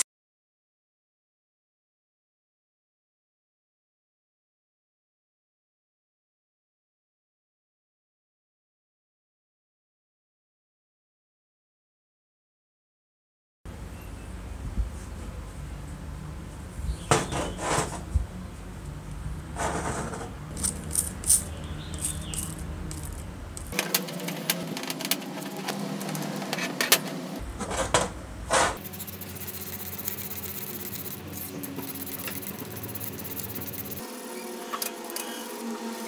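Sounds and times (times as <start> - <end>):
small metallic clicks and rattles: 20.5 - 24.3.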